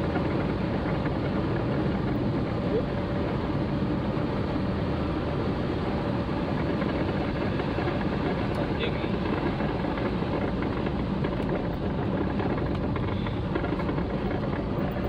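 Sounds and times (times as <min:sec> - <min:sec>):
car engine and tyres on wet road: 0:00.0 - 0:15.0.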